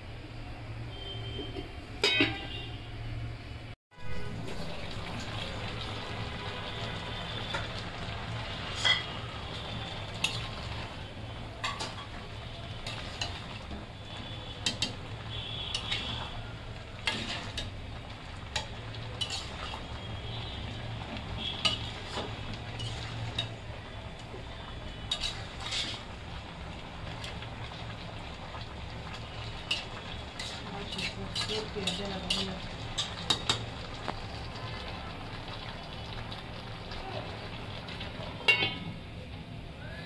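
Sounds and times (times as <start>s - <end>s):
metal spatula scraping a pot: 10.2s - 10.6s, 17.0s - 17.8s, 18.5s - 19.8s, 21.5s - 23.6s, 25.0s - 26.1s, 29.6s - 33.6s.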